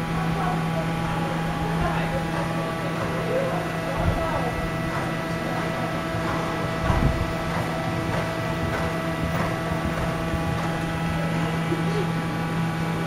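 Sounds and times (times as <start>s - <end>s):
steady mechanical hum: 0.0s - 13.0s
horse hooves thudding: 4.9s - 11.5s.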